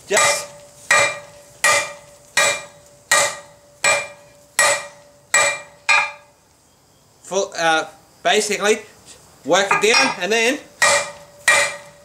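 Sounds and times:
hammer striking hot steel: 0.0s - 6.3s, 9.7s - 12.0s.

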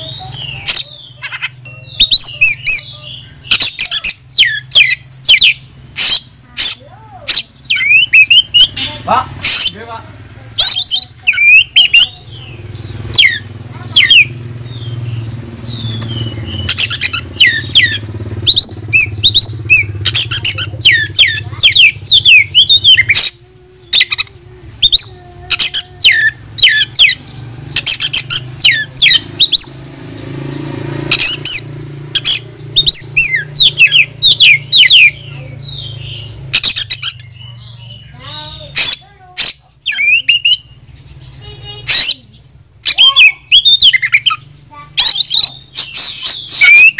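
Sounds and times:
bird singing loud whistles: 1.5s - 9.8s, 10.6s - 12.2s, 13.1s - 24.2s, 24.8s - 27.2s, 27.8s - 29.9s, 31.1s - 40.8s, 41.9s - 44.4s, 45.0s - 46.9s
steady low hum: 2.6s - 30.9s.

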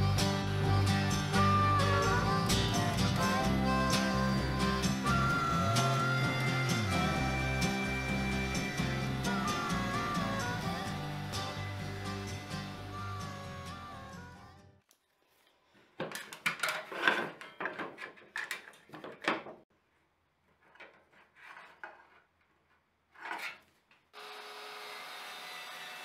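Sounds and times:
table saw motor running: 0.0s - 14.7s, 24.2s - 26.0s.

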